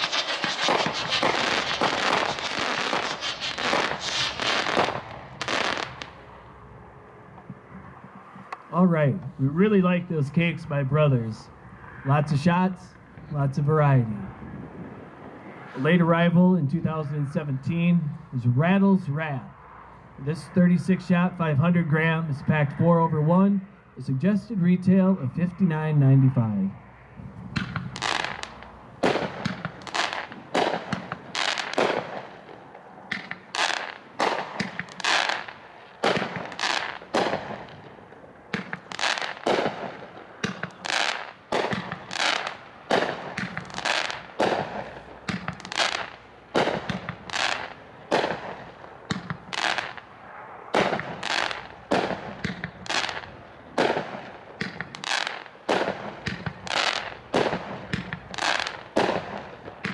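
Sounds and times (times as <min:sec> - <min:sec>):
fireworks shots with echo: 0:00.0 - 0:06.6, 0:27.4 - 0:59.9.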